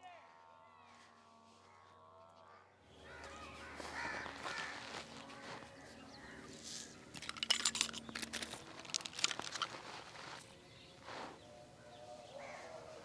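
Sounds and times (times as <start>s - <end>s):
dry leaves crackling and crunching: 3.0s - 11.3s.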